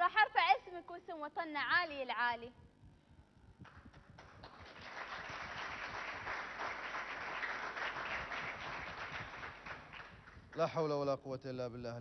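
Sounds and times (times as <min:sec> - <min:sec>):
audience applauding: 0:04.2 - 0:10.8.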